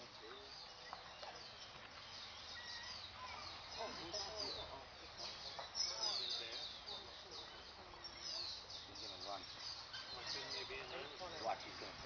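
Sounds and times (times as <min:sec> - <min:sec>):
birds chirping: 0:00.0 - 0:12.0
faint voices: 0:02.7 - 0:12.0.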